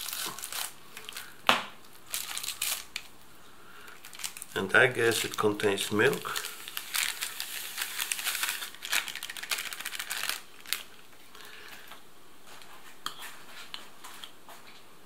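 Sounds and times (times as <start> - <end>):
foil pouch crinkling: 0.0 - 3.1, 3.8 - 11.0.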